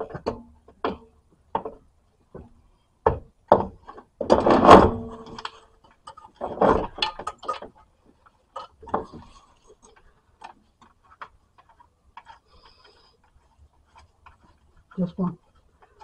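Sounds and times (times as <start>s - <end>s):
metal knocks and clunks: 0.0s - 5.5s, 6.1s - 7.8s.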